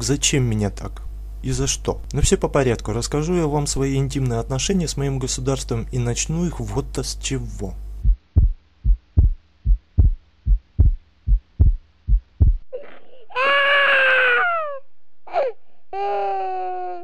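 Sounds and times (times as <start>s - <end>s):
heartbeat thumps: 8.0s - 12.7s
baby crying: 12.7s - 17.0s.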